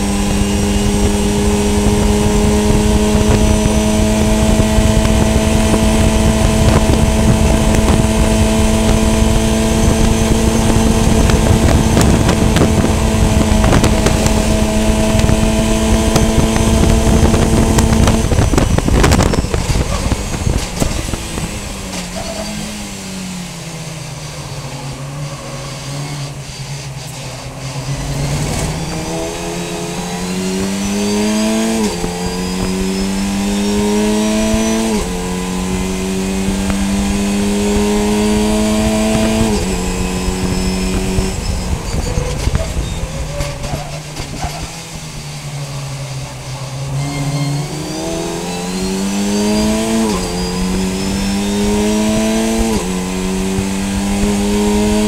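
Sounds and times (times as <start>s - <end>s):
race car engine: 0.0s - 55.0s
gear upshifts: 0.2s - 55.0s.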